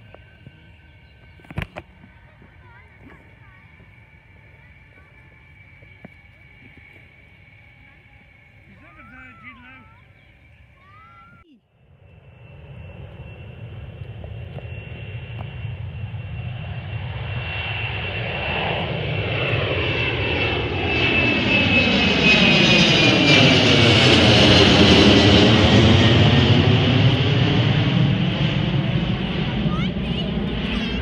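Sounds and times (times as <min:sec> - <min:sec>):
jet airliner engines: 0:00.0 - 0:31.0.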